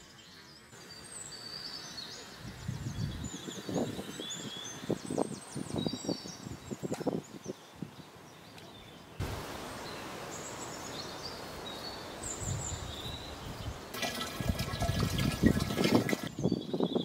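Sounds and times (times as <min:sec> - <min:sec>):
birds chirping: 0:00.0 - 0:17.0
outdoor background noise: 0:00.0 - 0:17.0
water pouring and splashing: 0:13.9 - 0:16.3.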